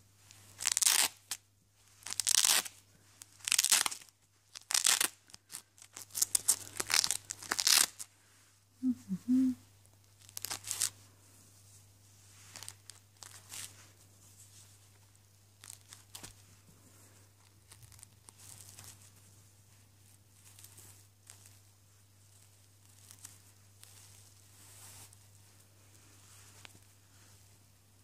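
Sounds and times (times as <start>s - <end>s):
fabric rustling: 0.0s - 8.6s, 10.3s - 27.7s
faint steady hum: 0.0s - 28.0s
velcro ripping: 0.5s - 1.4s, 2.0s - 8.1s, 10.2s - 10.9s, 12.5s - 13.7s, 15.6s - 16.3s.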